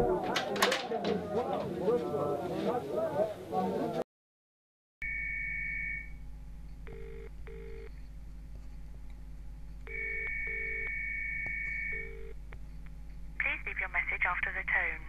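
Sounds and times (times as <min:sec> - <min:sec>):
electrical hum: 0:05.0 - 0:15.0
telephone ringing tone: 0:06.9 - 0:07.9, 0:09.9 - 0:12.4.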